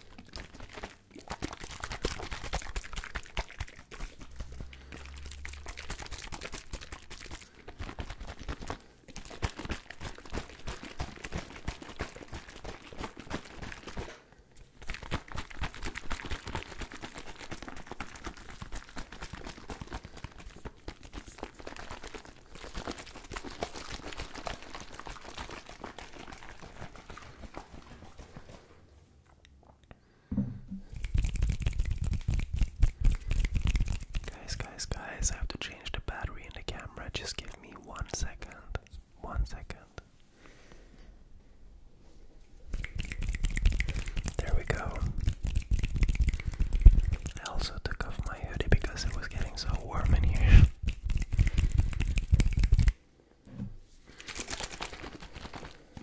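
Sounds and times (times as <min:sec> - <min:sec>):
fast tapping and scratching: 0:14.8 - 0:28.6, 0:30.8 - 0:35.0, 0:42.7 - 0:53.0, 0:54.2 - 0:56.0.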